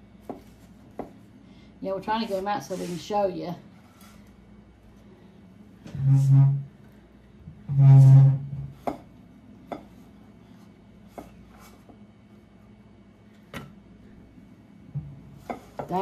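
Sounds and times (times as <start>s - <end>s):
spatula scraping metal pan: 6.0s - 6.7s, 7.7s - 8.5s.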